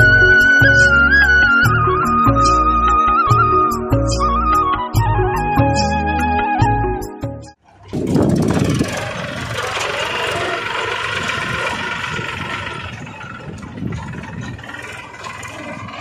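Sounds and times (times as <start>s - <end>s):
small motor running: 7.9s - 16.0s.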